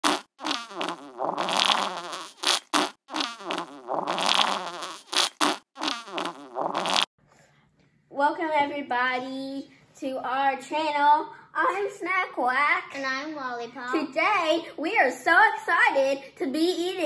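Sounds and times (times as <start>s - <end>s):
fart sound effects: 0.0s - 7.1s.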